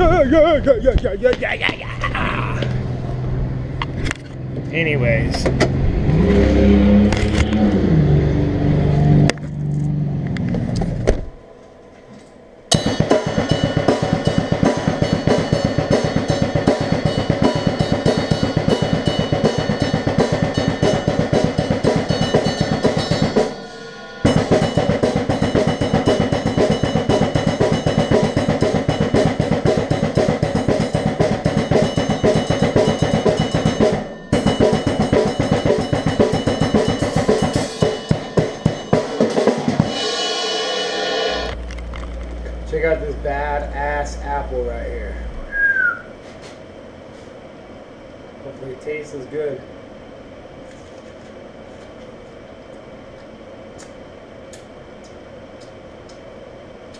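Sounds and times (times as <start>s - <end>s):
car engine running: 2.1s - 11.4s
drum kit fast beat: 12.7s - 41.6s.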